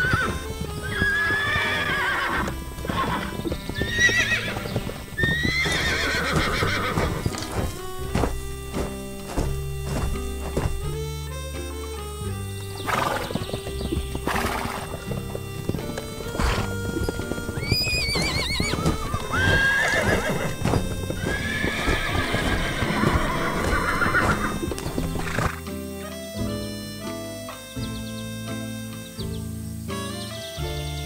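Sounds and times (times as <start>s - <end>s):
horse whinnying: 0.0s - 7.9s, 12.8s - 26.2s
horse neighing: 0.0s - 8.1s, 12.4s - 26.3s
background music: 0.0s - 31.0s
hooves clip-clopping: 0.0s - 31.0s.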